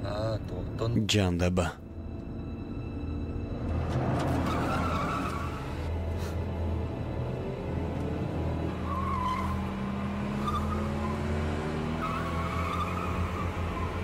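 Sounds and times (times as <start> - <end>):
car engines revving: 3.5 - 14.0.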